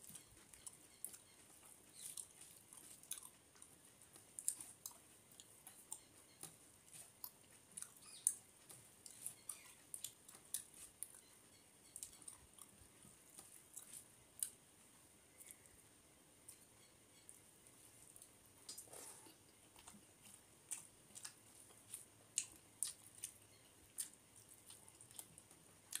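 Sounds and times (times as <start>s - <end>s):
chewing: 0.0s - 14.6s, 15.3s - 15.8s, 16.5s - 26.0s.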